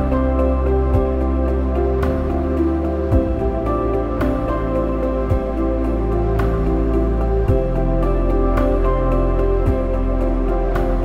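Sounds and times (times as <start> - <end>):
calm sustained background music: 0.0 - 11.0.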